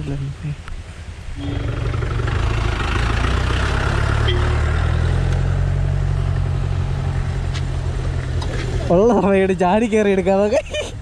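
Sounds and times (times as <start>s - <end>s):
vehicle engine running: 1.4s - 9.2s.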